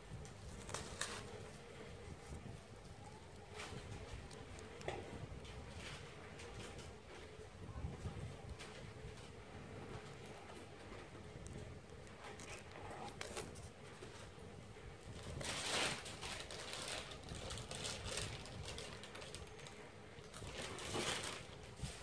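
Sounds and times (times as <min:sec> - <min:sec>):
leaves rustling and crinkling: 0:00.2 - 0:07.2, 0:15.0 - 0:22.0.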